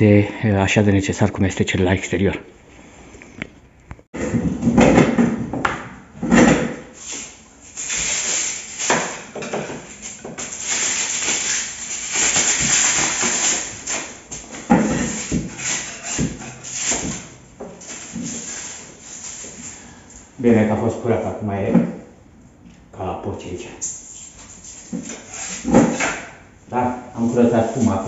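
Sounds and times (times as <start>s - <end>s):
hand tool scraping foam: 7.0s - 20.0s, 24.0s - 26.2s.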